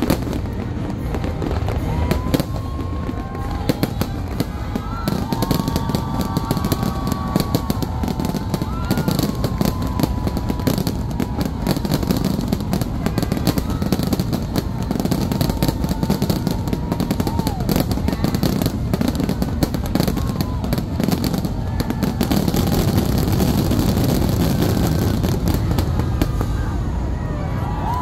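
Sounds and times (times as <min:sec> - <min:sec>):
fireworks bursting and crackling: 0:00.0 - 0:27.2.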